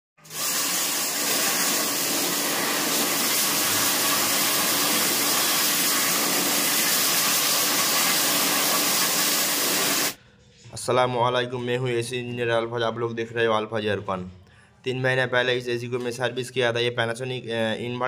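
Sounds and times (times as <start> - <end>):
high-pressure water spray hissing: 0.2 - 10.2.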